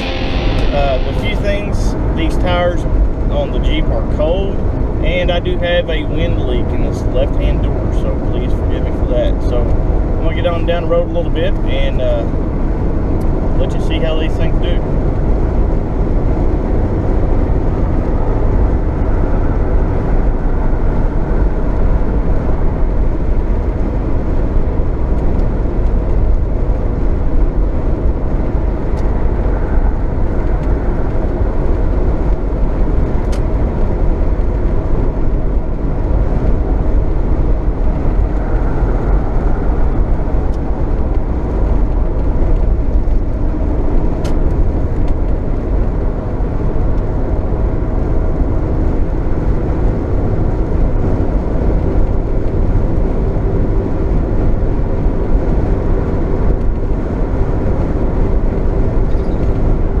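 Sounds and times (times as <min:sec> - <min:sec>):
tires humming on pavement: 0:00.0 - 1:00.0.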